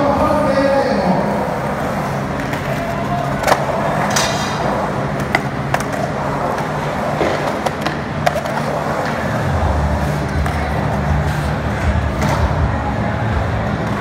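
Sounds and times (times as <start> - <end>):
skateboard wheels rolling on concrete: 0.0 - 14.0
skateboard clacks: 1.6 - 12.7.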